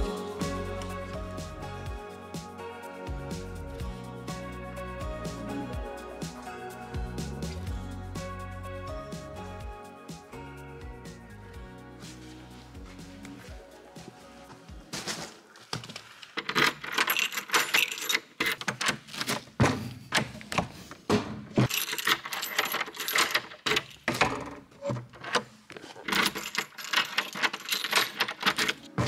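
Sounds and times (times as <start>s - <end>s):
keys jangling in door lock: 16.4s - 19.4s, 21.6s - 29.0s
metal door handle rattling: 16.4s - 20.6s, 21.6s - 29.0s.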